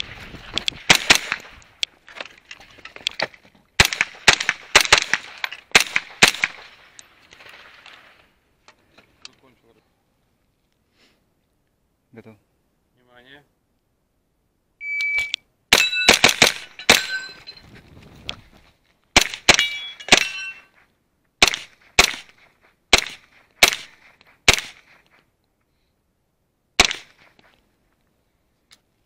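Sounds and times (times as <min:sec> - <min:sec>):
gunshots: 0:00.8 - 0:01.6, 0:03.8 - 0:07.8, 0:15.7 - 0:17.4, 0:19.1 - 0:20.5, 0:21.4 - 0:25.0, 0:26.8 - 0:27.4
metallic ringing of steel targets: 0:15.1 - 0:17.6, 0:19.5 - 0:20.7.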